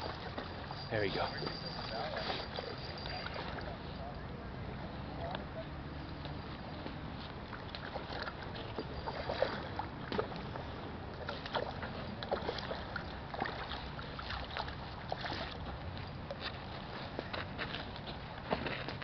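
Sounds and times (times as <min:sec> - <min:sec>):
fish splashing in water: 0:07.5 - 0:15.8.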